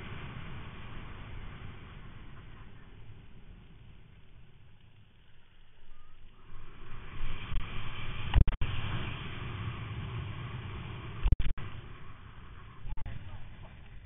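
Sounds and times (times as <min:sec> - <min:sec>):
loud wind buffet: 0:05.9 - 0:14.0
wind and water rushing: 0:06.4 - 0:12.1.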